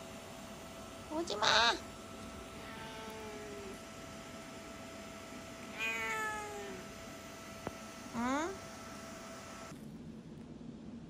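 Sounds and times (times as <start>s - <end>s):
cat meowing: 1.3s - 1.8s, 2.6s - 3.8s, 5.7s - 6.8s.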